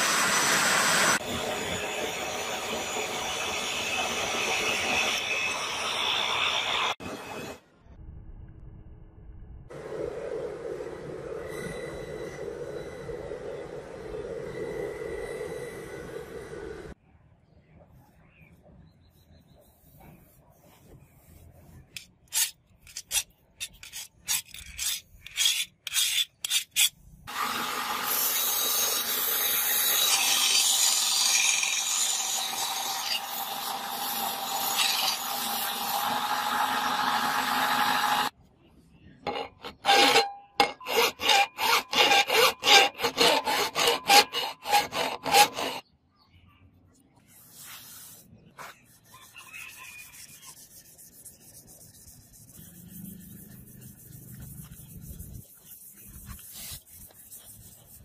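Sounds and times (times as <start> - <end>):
rasping strokes on steel: 21.2 - 38.3, 39.2 - 45.8, 47.7 - 58.0
belt grinder grinding blade: 22.3 - 38.3, 39.3 - 45.8
hand sanding rubbing: 47.3 - 58.0.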